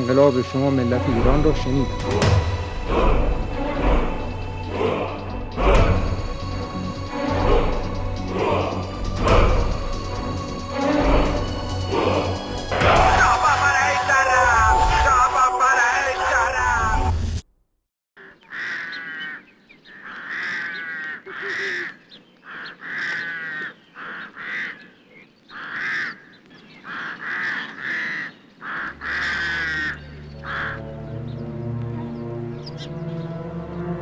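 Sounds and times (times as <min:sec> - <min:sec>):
music cue: 0:00.0 - 0:17.1
low dark droning music: 0:00.0 - 0:17.2, 0:28.8 - 0:34.0
crows cawing: 0:18.2 - 0:31.3.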